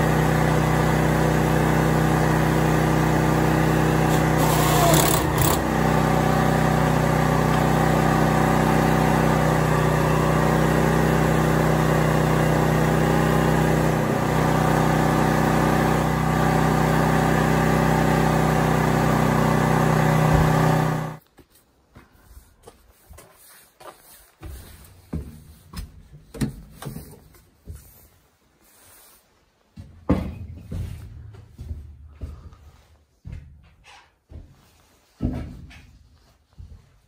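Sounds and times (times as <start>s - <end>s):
generator engine running: 0.0s - 21.2s.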